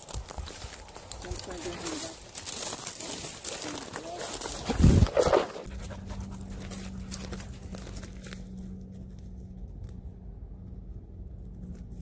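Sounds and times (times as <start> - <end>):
brush crackle: 0.0 - 10.2
dog panting: 5.6 - 6.8.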